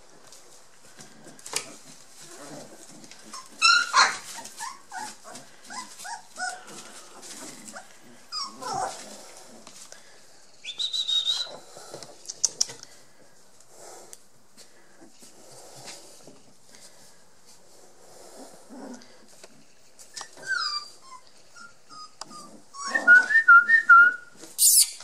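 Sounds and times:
puppies yelping and squealing: 0:02.2 - 0:09.1, 0:20.0 - 0:23.2.

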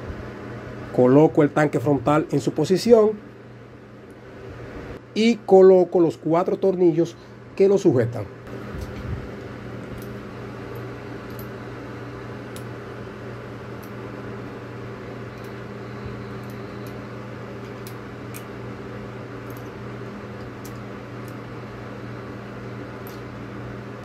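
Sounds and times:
low machine hum: 0:00.0 - 0:24.0.

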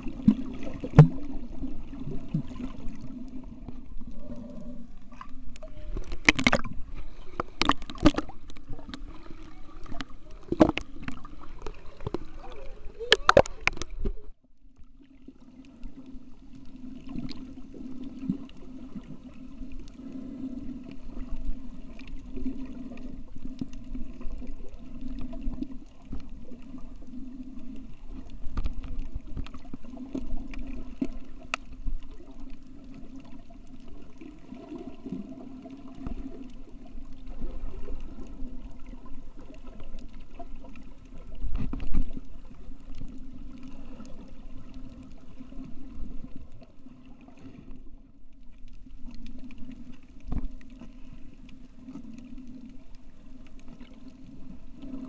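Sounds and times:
muffled underwater water noise: 0:00.0 - 0:55.0
faint clicks: 0:03.2 - 0:14.2, 0:22.9 - 0:34.3.

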